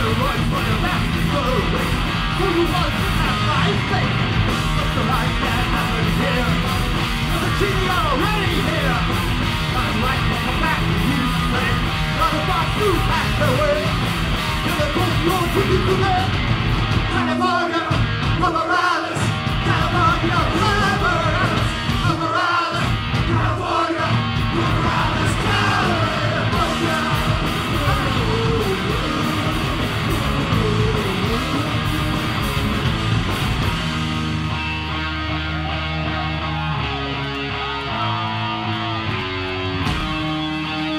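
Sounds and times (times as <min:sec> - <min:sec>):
live rock band playing: 0:00.0 - 0:40.9
person singing: 0:17.1 - 0:32.3.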